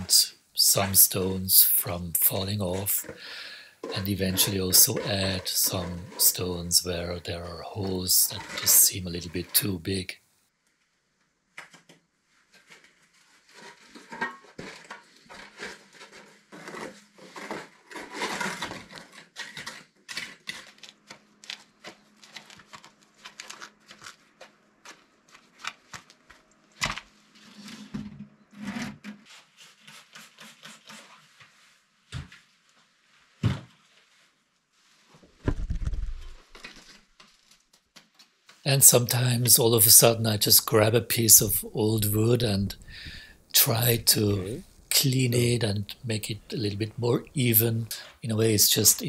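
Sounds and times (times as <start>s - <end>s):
trowel scraping mortar: 0.0s - 10.1s, 12.7s - 20.9s, 28.5s - 31.5s.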